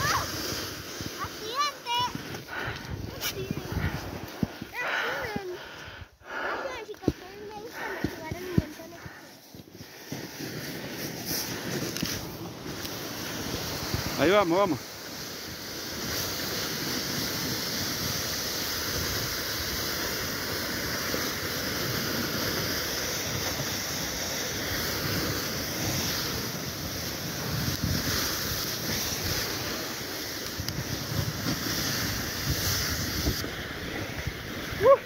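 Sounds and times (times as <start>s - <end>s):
wind rushing over microphone: 0.0s - 6.2s, 23.1s - 35.0s
sled scraping over snow: 0.0s - 35.0s.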